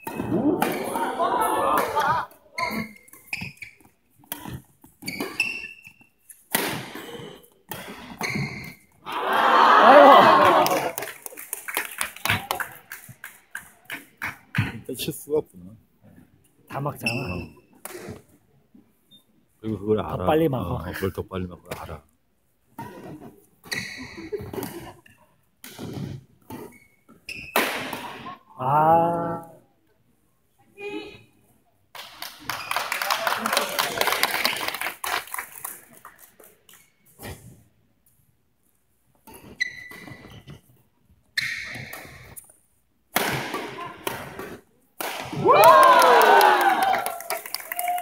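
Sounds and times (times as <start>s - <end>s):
spectators cheering and shouting: 0.2s - 2.2s, 9.0s - 11.0s, 45.4s - 48.0s
shoes squeaking on court floor: 2.5s - 9.0s, 17.0s - 18.3s, 22.8s - 27.6s, 39.2s - 42.5s.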